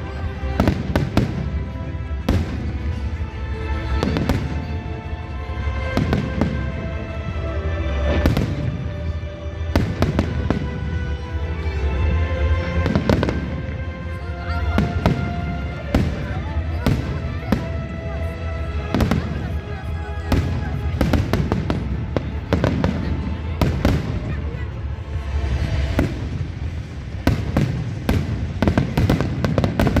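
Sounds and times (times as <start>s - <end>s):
fireworks bursting with bangs: 0.0s - 5.0s, 5.8s - 6.8s, 8.0s - 9.1s, 9.7s - 11.3s, 12.6s - 18.2s, 18.8s - 24.6s, 25.2s - 30.0s
music: 0.0s - 30.0s.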